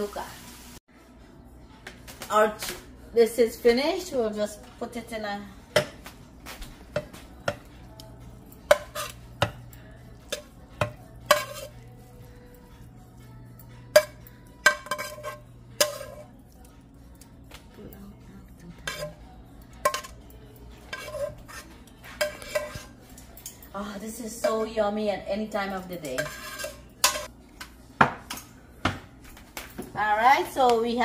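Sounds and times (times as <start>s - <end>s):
spoon scraping pan: 6.9s - 12.2s, 13.9s - 16.5s, 18.8s - 23.4s, 26.0s - 27.3s
metal spoon clinking on pans: 6.9s - 12.6s, 13.8s - 16.5s, 18.8s - 24.8s, 25.7s - 27.3s.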